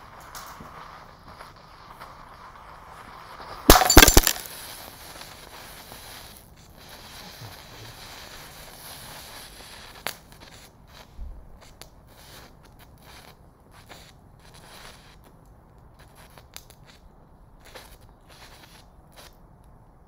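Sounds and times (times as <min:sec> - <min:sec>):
hiss of burning remains: 0:00.0 - 0:20.0
sharp crack: 0:03.6 - 0:04.8
glass scattering: 0:03.7 - 0:04.5
loud bang of glass bursting: 0:03.7 - 0:04.5.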